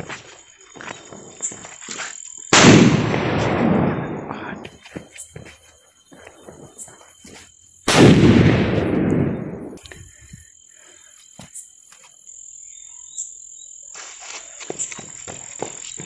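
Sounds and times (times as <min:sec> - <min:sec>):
firecracker bang: 0:02.6 - 0:04.6, 0:07.9 - 0:09.8.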